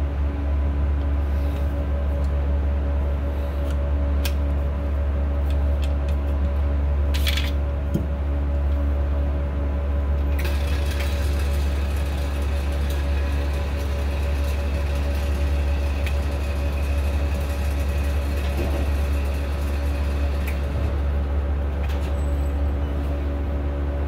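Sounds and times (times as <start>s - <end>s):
low machine hum: 0.0s - 24.0s.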